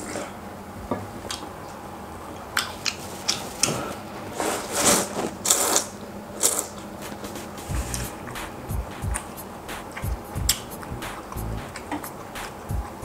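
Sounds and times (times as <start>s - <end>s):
wet mouth clicks: 7.8s - 13.0s.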